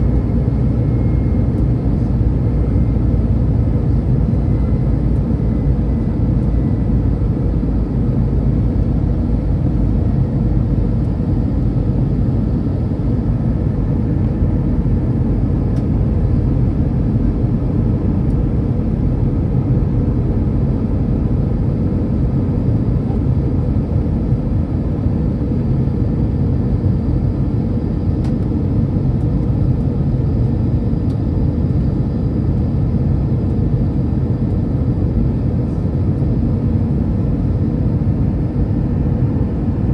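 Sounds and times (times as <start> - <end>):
jet engine and airflow rumble: 0.0 - 39.9.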